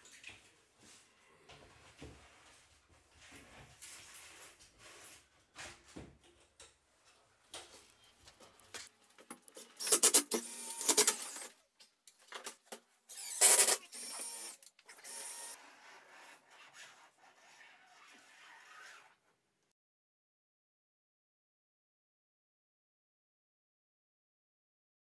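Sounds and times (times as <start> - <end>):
cordless drill driving screws: 9.8 - 11.5, 13.1 - 15.6.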